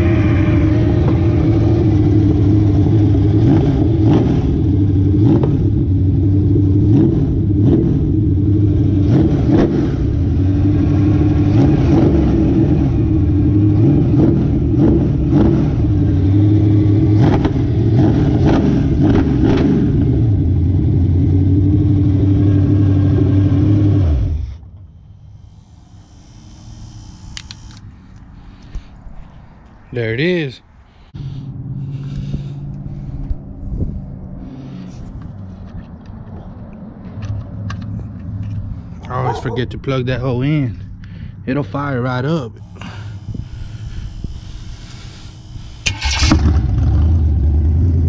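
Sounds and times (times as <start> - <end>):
engine running through open exhaust: 0.0 - 28.9, 31.0 - 48.0
sharp exhaust cracks: 37.2 - 47.5.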